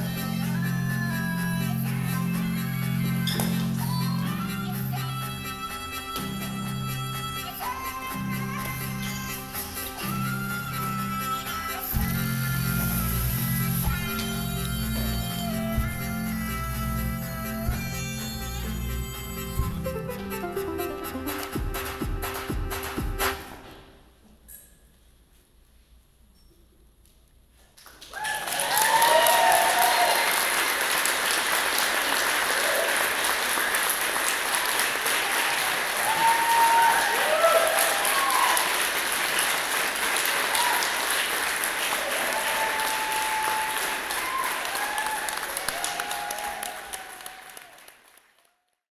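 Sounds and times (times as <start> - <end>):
audience clapping: 20.6 - 23.6, 27.7 - 48.8
audience whooping and shouting: 28.1 - 30.9, 32.1 - 33.5, 34.6 - 39.4, 40.2 - 47.9.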